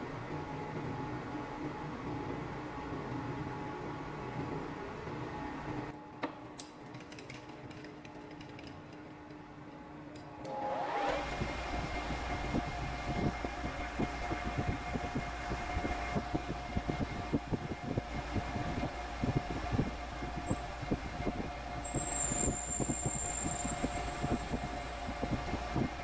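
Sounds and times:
metal lathe whine: 0:18.0 - 0:26.0.

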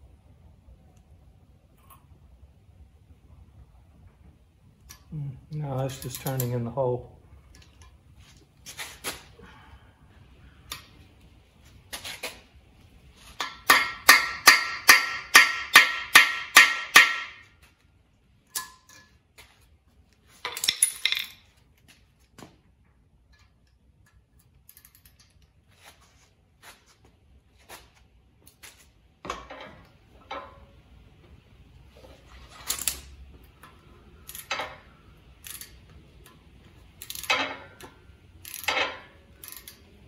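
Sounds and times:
metal tools clattering: 0:05.9 - 0:06.6, 0:20.4 - 0:21.6.

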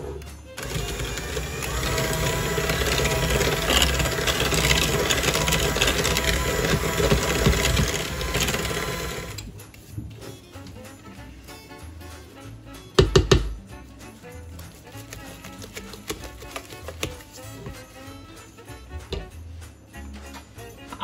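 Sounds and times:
electric hand mixer running: 0:00.6 - 0:09.4.

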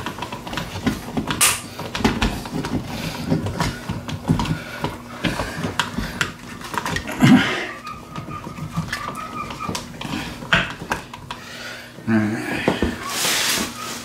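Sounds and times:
low vocal sound: 0:12.0 - 0:13.1.

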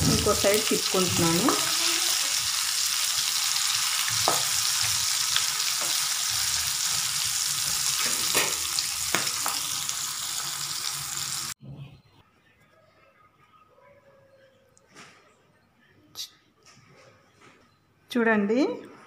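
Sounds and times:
fish sizzling in hot oil: 0:00.0 - 0:11.6.

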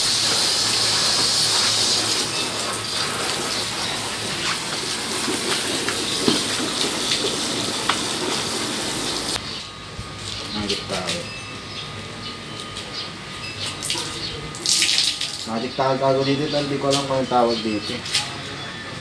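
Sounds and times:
rushing hiss: 0:00.0 - 0:09.4
cloth wiping plastic: 0:00.3 - 0:09.4.

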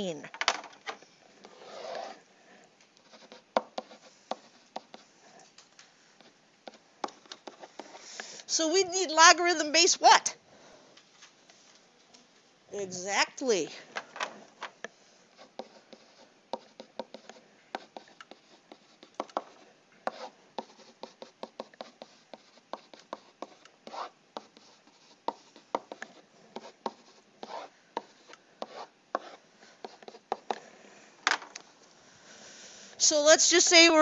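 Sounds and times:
stylus scratching strokes: 0:01.1 - 0:05.5, 0:06.2 - 0:08.7, 0:14.4 - 0:31.1
stylus tapping on tablet: 0:19.0 - 0:19.6.

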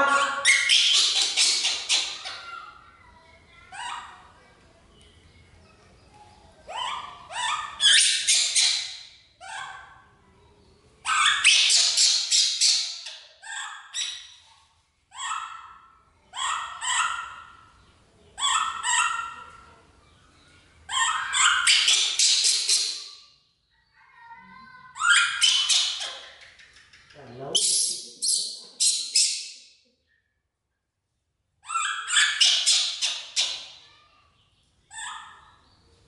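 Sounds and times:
baby monkey squealing cries: 0:11.1 - 0:14.3, 0:18.4 - 0:19.6, 0:20.9 - 0:23.1, 0:24.9 - 0:26.2, 0:31.6 - 0:33.8, 0:34.9 - 0:35.5.

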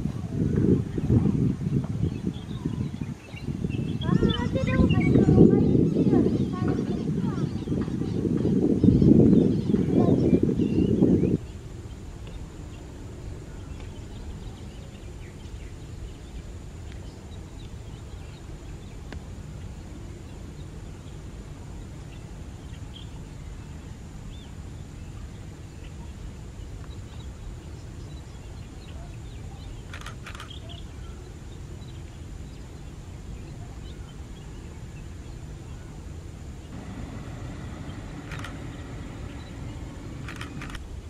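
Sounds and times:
faint bird chirps: 0:26.8 - 0:36.0, 0:36.6 - 0:40.8
low outdoor rumble: 0:36.4 - 0:41.0.

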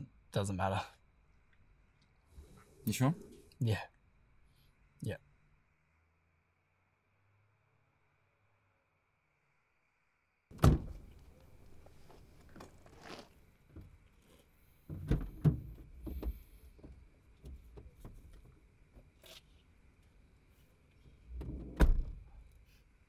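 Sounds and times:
light knocks and bumps: 0:10.5 - 0:19.2
heavy thunk inside car: 0:10.6 - 0:11.1.

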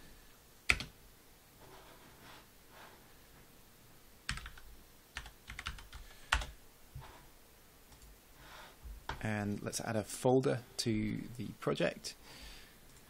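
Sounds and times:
computer keyboard key presses: 0:04.3 - 0:04.6, 0:05.2 - 0:06.5.

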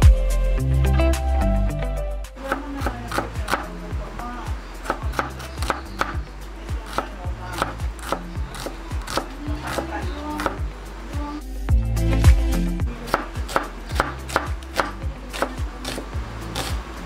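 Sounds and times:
background music: 0:00.0 - 0:17.0
knife slicing onion: 0:02.4 - 0:03.8, 0:04.8 - 0:10.7, 0:13.0 - 0:16.9
knife tapping cutting board: 0:02.5 - 0:03.7, 0:04.8 - 0:06.2, 0:06.9 - 0:10.6.

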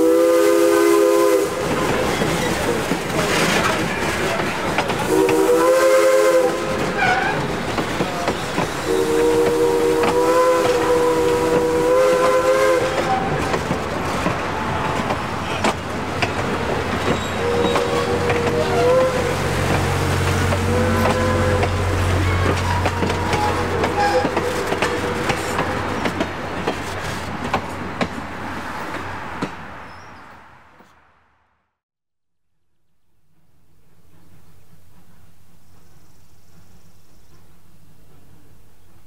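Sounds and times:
steam locomotive chime whistle: 0:00.0 - 0:01.7, 0:05.1 - 0:07.4, 0:08.8 - 0:13.4, 0:17.2 - 0:19.5, 0:20.5 - 0:25.7.

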